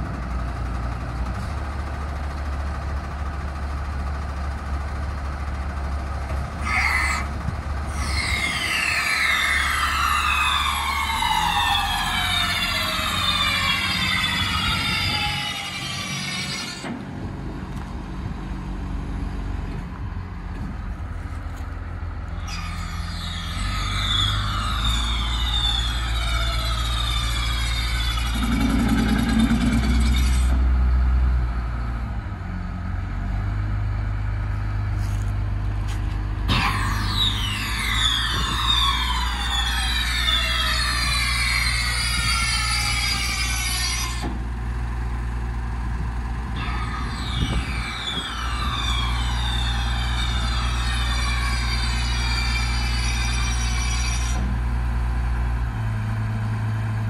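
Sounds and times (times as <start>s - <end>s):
diesel engine rumbling: 0.0s - 57.0s
hiss with whistly tones: 7.9s - 16.9s, 22.4s - 30.3s, 36.5s - 44.3s, 46.6s - 54.5s.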